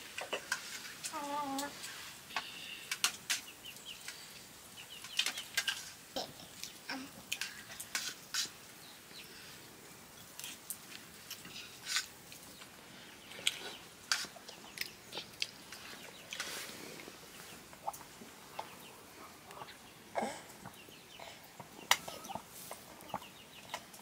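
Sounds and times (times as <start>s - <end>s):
chickens clucking: 17.2s - 24.0s.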